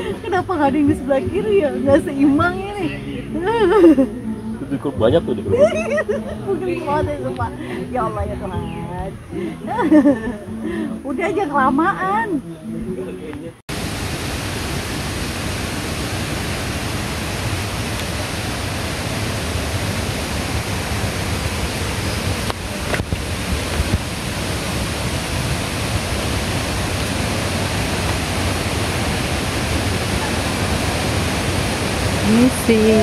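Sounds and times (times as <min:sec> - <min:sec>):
waterfall rushing: 0:00.0 - 0:04.8, 0:13.7 - 0:33.0.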